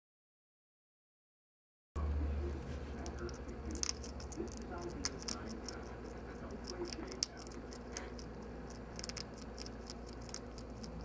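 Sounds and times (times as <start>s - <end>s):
faint low hum: 2.0s - 11.0s
hedgehog chewing crunchy food: 2.2s - 11.0s.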